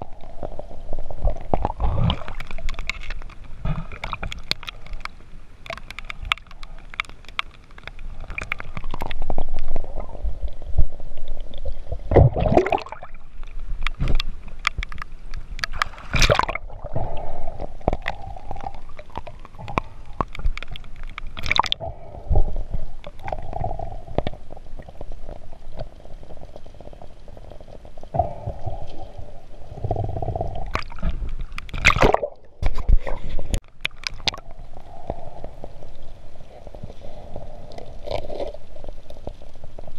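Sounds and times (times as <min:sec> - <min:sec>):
water splashing and gurgling: 0:00.0 - 0:39.9
muffled underwater noise: 0:34.3 - 0:39.9.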